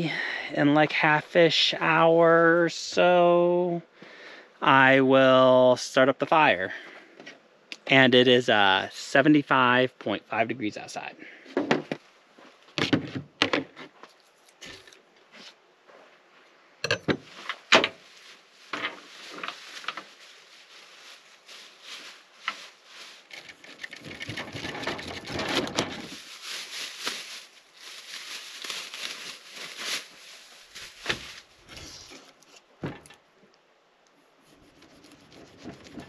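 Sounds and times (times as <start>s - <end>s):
knife sawing through pineapple: 34.5s - 36.0s.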